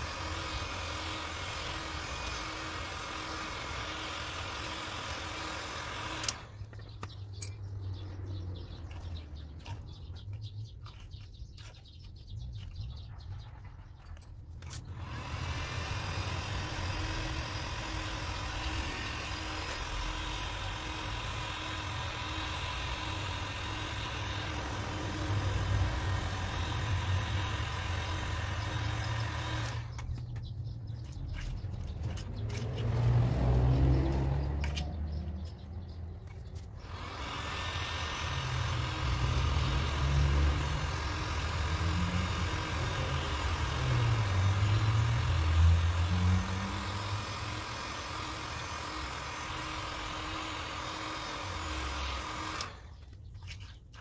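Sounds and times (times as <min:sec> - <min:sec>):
machine hiss: 0:15.1 - 0:29.8, 0:36.9 - 0:52.7.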